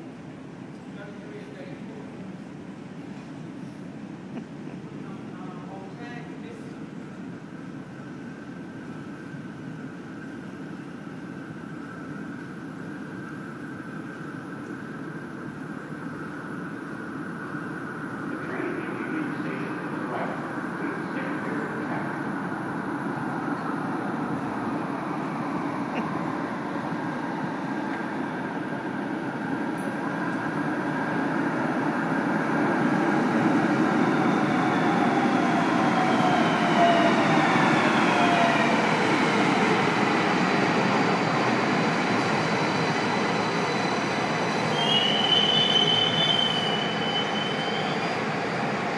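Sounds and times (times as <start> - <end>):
light rail train rumble: 0.0 - 48.9
short high brake squeal: 44.6 - 48.2.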